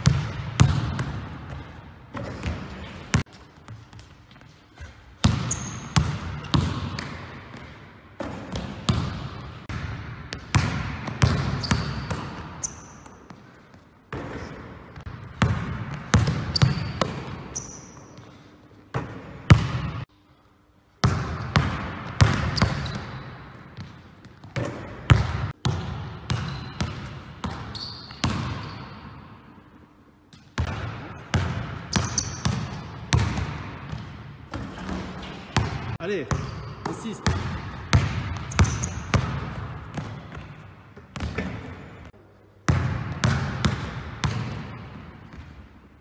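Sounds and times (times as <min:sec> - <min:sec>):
sneakers squeaking on court: 0:00.0 - 0:20.0, 0:21.6 - 0:29.4, 0:30.4 - 0:42.1
basketball dribbling in gym: 0:00.0 - 0:20.1, 0:21.0 - 0:29.8, 0:30.4 - 0:42.1, 0:42.7 - 0:46.0.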